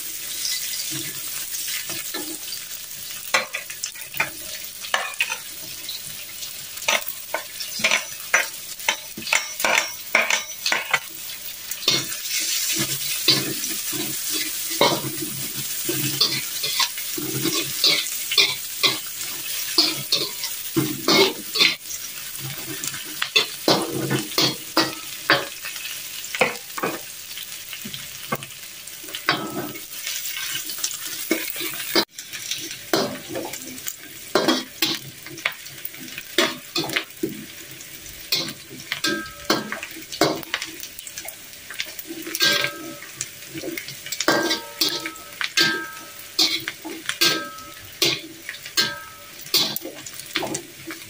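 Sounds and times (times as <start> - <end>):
food sizzling in hot oil: 0.0 - 51.0
spatula scraping a wok: 11.8 - 25.9.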